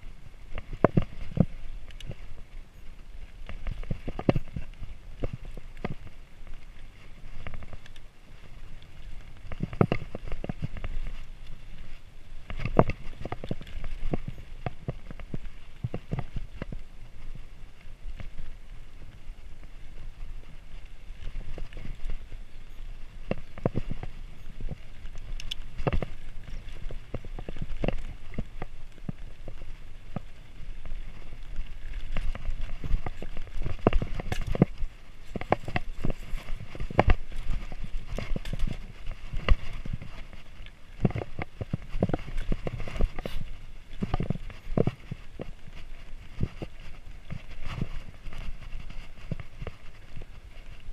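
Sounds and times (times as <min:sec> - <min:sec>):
mountain bike clattering: 0:00.0 - 0:50.9
wheels knocking on rocks: 0:00.0 - 0:50.9
wind rumble on microphone: 0:00.0 - 0:50.9.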